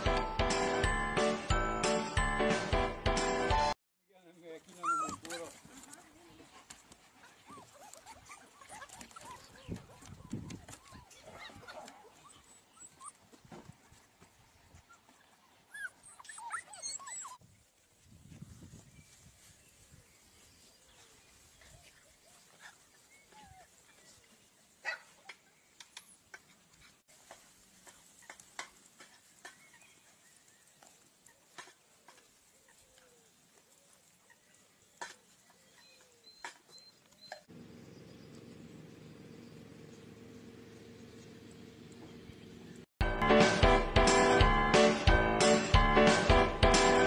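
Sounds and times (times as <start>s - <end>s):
puppies yipping and whining: 4.7s - 5.6s, 7.2s - 13.4s, 14.8s - 17.4s, 35.6s - 37.5s.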